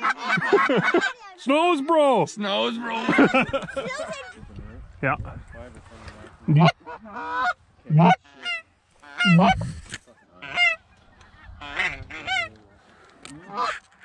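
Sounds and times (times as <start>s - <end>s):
geese honking: 6.5s - 14.0s.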